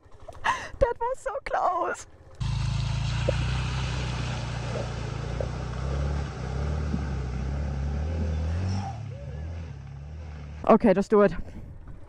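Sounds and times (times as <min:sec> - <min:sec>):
motorcycle engine at low revs: 0:02.1 - 0:10.8.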